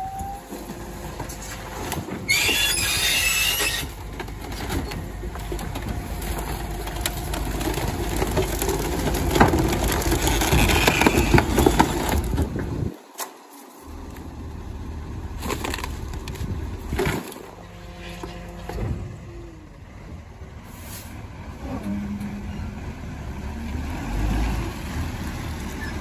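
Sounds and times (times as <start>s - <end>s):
rubbish clattering and cracking: 0.4s - 14.3s, 15.3s - 19.3s
compactor squeal: 2.2s - 4.0s, 10.2s - 11.6s, 17.5s - 19.2s, 25.7s - 26.0s.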